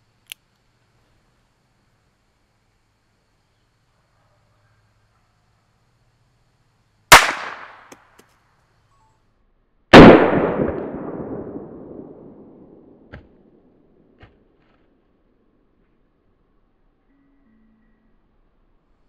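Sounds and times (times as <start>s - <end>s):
revolver gunshot cracks: 7.1s - 7.9s, 10.0s - 13.6s.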